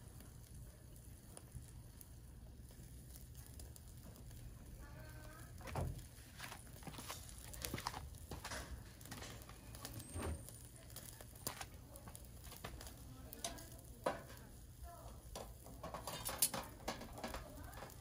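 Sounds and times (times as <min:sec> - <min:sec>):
meat sizzling on grill: 0:00.0 - 0:18.0
metal tongs scraping grill: 0:05.6 - 0:18.0.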